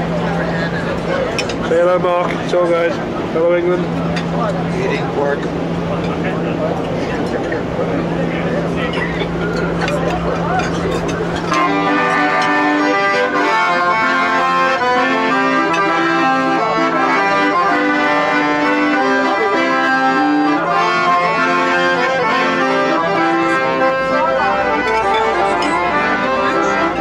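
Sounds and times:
accordion playing a tune: 0:00.0 - 0:27.0.

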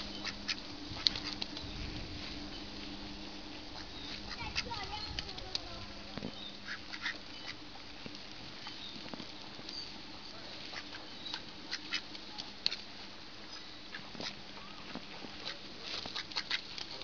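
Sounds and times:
ducks quacking: 0:00.0 - 0:01.5, 0:03.7 - 0:05.9, 0:06.5 - 0:07.7, 0:10.6 - 0:12.1, 0:15.4 - 0:16.7.

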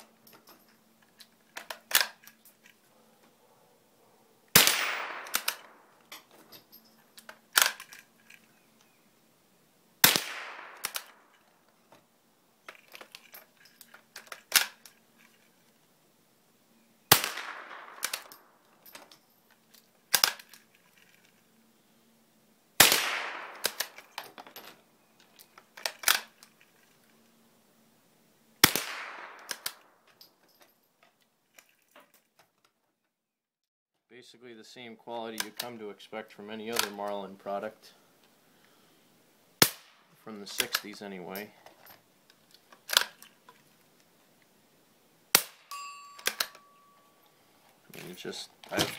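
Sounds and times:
rifle bolt clicks: 0:01.6 - 0:02.8, 0:04.6 - 0:05.8, 0:10.3 - 0:11.4, 0:17.3 - 0:19.1, 0:23.1 - 0:24.2, 0:28.9 - 0:29.9, 0:36.7 - 0:37.0
rifle shots: 0:04.5 - 0:05.9, 0:10.0 - 0:11.3, 0:17.1 - 0:18.6, 0:22.8 - 0:24.2, 0:28.6 - 0:30.0.

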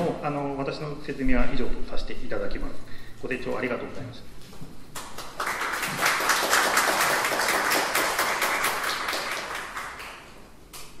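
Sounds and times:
audience applauding: 0:05.0 - 0:10.4.

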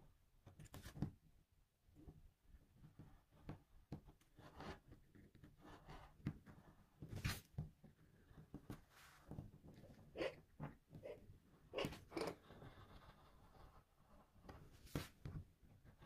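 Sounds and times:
gouge scratching lino: 0:08.2 - 0:16.0.

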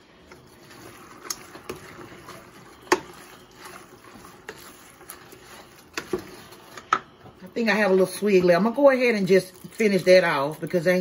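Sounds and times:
spoon scraping in pot: 0:00.2 - 0:07.1.

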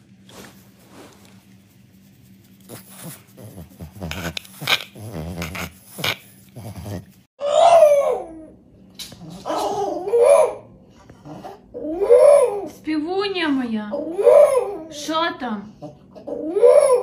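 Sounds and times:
dog grumbling: 0:02.7 - 0:07.2
dog howling moans: 0:06.6 - 0:08.6, 0:09.2 - 0:12.8, 0:14.0 - 0:15.0, 0:15.8 - 0:17.0.

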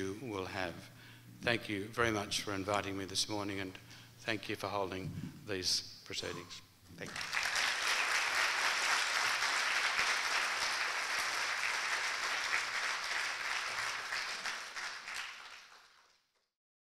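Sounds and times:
audience applauding: 0:07.0 - 0:16.5.

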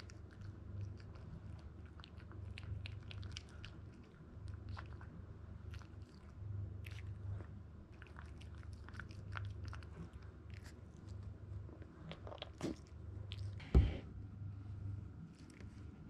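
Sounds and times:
dog chewing and crunching food: 0:00.0 - 0:13.6, 0:15.2 - 0:16.0
knock: 0:13.6 - 0:14.1
loud short thump: 0:13.6 - 0:14.1.

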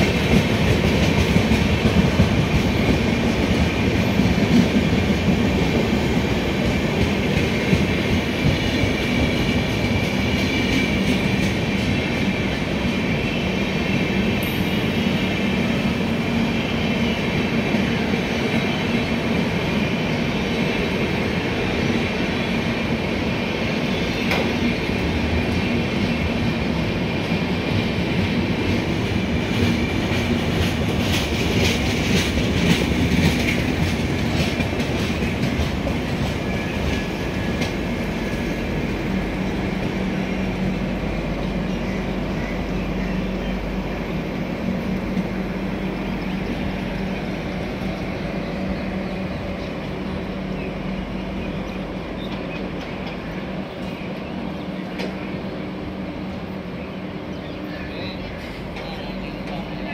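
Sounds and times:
train wheels rumbling on rails: 0:00.0 - 0:59.9
wheels clicking over rail joints: 0:28.2 - 0:38.7.

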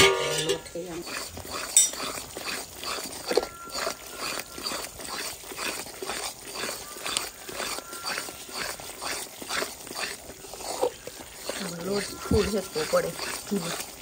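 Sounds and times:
spoon scraping and knocking pan: 0:00.0 - 0:01.0
spoon stirring batter in a pan: 0:00.0 - 0:14.0.

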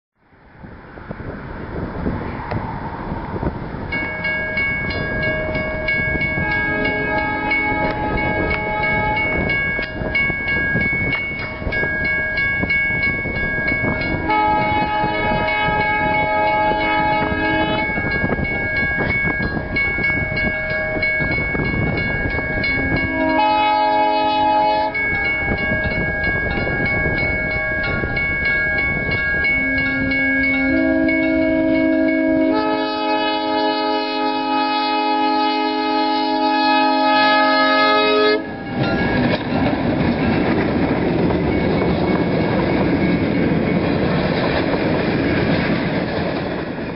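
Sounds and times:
level crossing warning bell: 0:03.8 - 0:45.6
locomotive air horn blasts: 0:05.4 - 0:09.5, 0:14.1 - 0:18.1, 0:22.6 - 0:25.1, 0:29.6 - 0:38.7.

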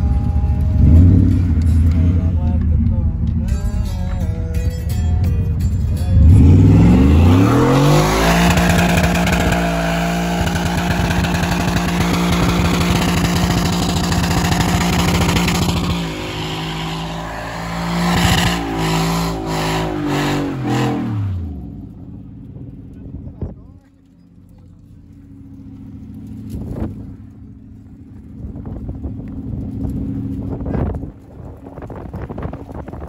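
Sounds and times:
car engine revving: 0:00.0 - 0:03.7, 0:06.0 - 0:23.0, 0:24.4 - 0:31.3
tyre squealing: 0:07.2 - 0:21.3.

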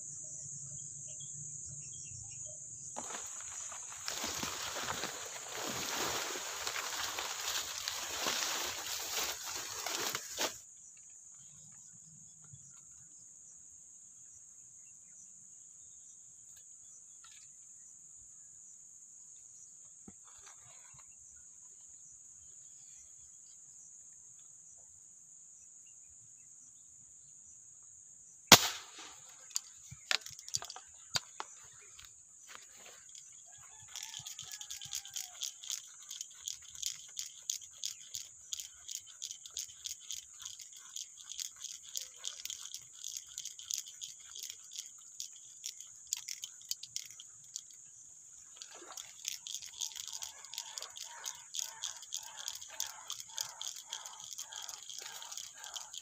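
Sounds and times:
high-pitched insect drone: 0:00.0 - 0:10.5, 0:32.5 - 0:47.8, 0:48.6 - 0:56.0
clicks and rattles: 0:03.0 - 0:10.6, 0:29.0 - 0:32.1, 0:33.0 - 0:47.8, 0:48.6 - 0:56.0
rapid regular ticking: 0:03.1 - 0:10.2, 0:28.5 - 0:31.4, 0:33.0 - 0:47.8, 0:48.6 - 0:56.0
air rifle shot: 0:28.5 - 0:29.2.

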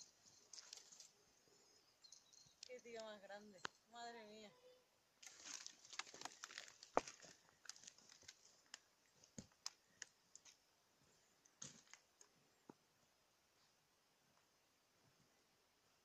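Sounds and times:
footsteps crunching on gravel: 0:05.2 - 0:08.6.

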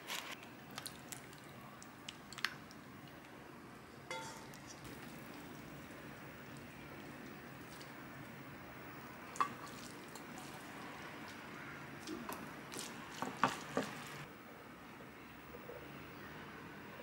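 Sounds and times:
wet squishing noodles: 0:00.1 - 0:03.4, 0:04.5 - 0:08.3, 0:09.0 - 0:14.3
metal tongs clinking on pot: 0:04.1 - 0:04.8.

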